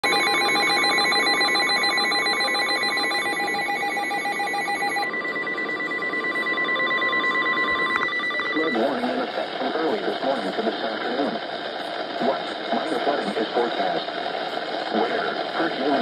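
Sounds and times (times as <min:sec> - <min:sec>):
rapid electronic alert beeps: 0:00.0 - 0:09.1
steady warning alarm tone: 0:00.0 - 0:09.2.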